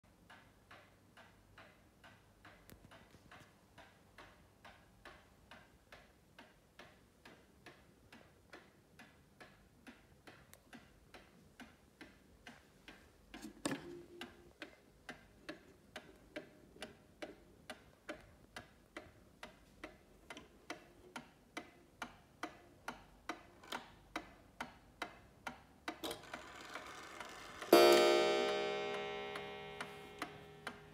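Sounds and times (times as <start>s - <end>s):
mantel clock ticking: 0.1s - 30.9s.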